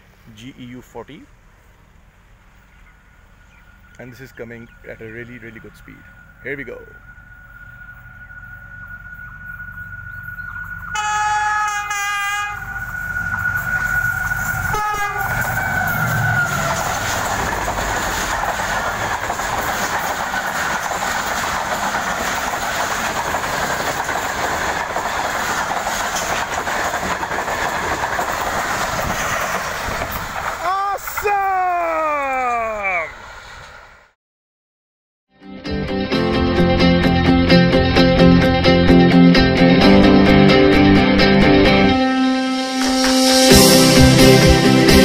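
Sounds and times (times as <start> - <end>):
train coaches rushing past: 3.0 - 34.1, 42.6 - 45.0
locomotive horn blasts: 10.9 - 16.9
wheels clattering over rail joints: 12.6 - 31.5.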